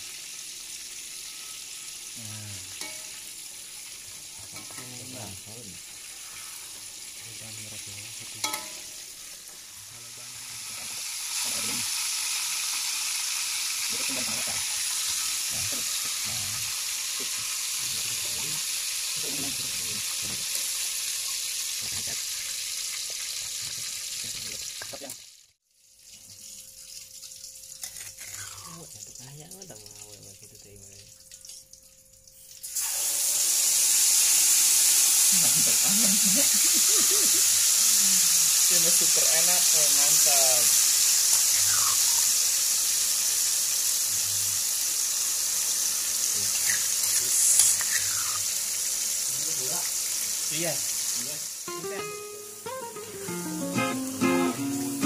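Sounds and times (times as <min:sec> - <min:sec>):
tomatoes sizzling in oil: 0:00.0 - 0:55.0
spoon clinking on wok: 0:02.8 - 0:03.2, 0:08.4 - 0:09.0.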